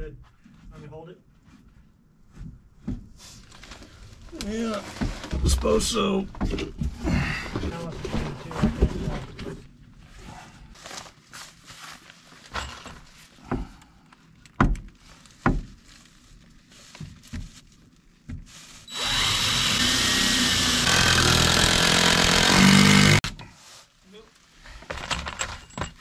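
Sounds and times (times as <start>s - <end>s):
power saw cutting wood: 18.9s - 23.2s.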